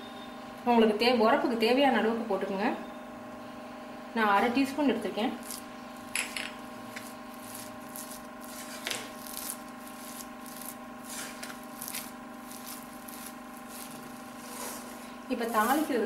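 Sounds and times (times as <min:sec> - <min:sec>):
steady hum: 0:03.0 - 0:16.0
spatula stirring thick rice: 0:06.8 - 0:16.0.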